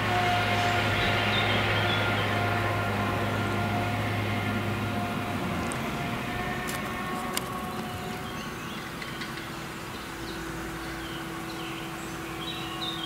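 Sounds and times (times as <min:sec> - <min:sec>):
forage harvester engine drone: 0:00.0 - 0:13.0
bird chirps: 0:07.6 - 0:13.0.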